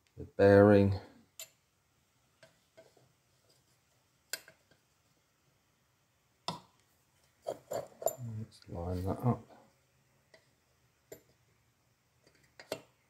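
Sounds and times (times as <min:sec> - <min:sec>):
metal bearing clicking and tapping: 0:11.1 - 0:11.4, 0:12.2 - 0:13.0.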